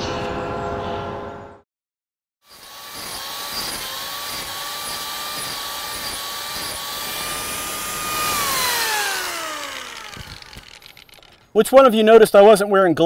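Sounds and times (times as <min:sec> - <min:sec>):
angle grinder grinding wood: 0:02.5 - 0:11.8.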